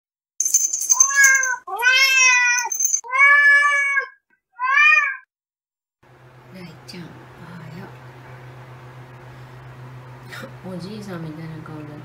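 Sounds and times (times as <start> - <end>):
cat meowing: 1.0 - 5.3.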